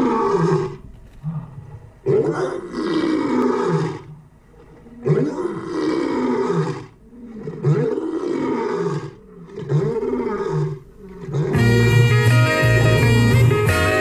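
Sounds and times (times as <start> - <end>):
lion roaring: 0.0 - 11.9
hip-hop beat with guitar: 11.6 - 14.0.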